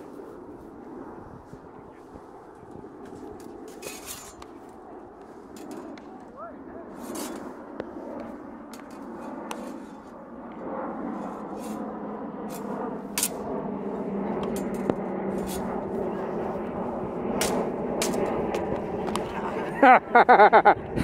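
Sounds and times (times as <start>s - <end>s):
metal blades clashing: 12.5s - 13.5s, 17.4s - 18.7s.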